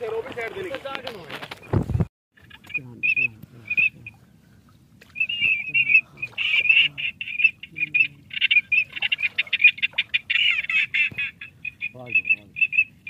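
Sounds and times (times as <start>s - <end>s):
duck calls chattering: 2.4s - 4.2s, 5.0s - 13.0s.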